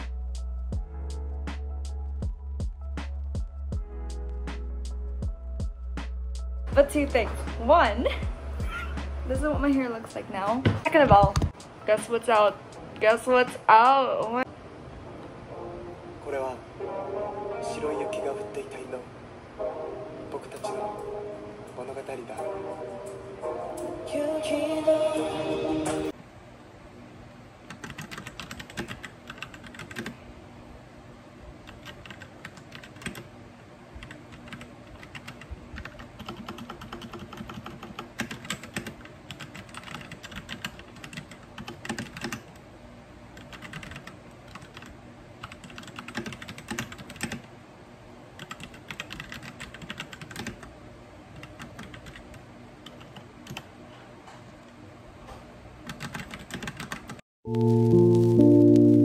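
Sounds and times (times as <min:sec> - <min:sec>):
mechanical keyboard typing: 0:27.7 - 0:30.2, 0:31.7 - 0:33.3, 0:34.0 - 0:42.6, 0:43.4 - 0:47.5, 0:48.4 - 0:50.7, 0:51.4 - 0:53.6, 0:55.8 - 0:57.2.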